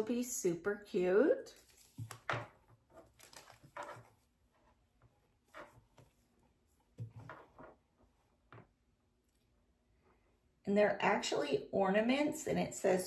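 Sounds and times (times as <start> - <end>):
package rustling and soft knocks: 1.6 - 8.8.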